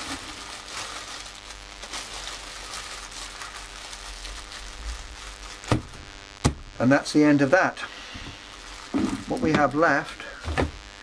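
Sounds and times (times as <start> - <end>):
plastic bag crinkling: 0.0 - 6.2, 8.3 - 10.0.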